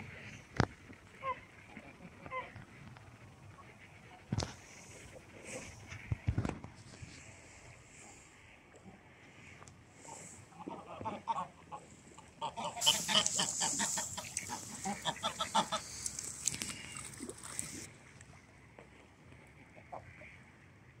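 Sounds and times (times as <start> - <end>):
ducks calling: 9.3 - 17.9.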